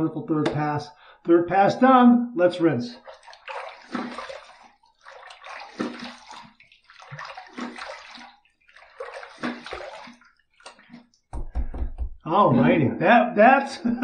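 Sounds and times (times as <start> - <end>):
water splashing in sink: 2.9 - 12.0.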